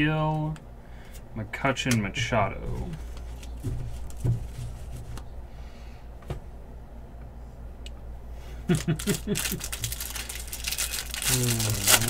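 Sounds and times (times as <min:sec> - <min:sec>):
low steady hum: 0:00.0 - 0:12.0
cards rustling: 0:02.7 - 0:05.0, 0:08.7 - 0:12.0.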